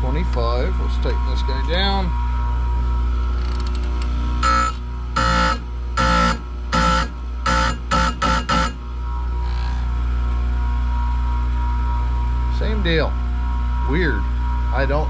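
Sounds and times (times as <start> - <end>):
grinder motor humming: 3.4 - 10.2.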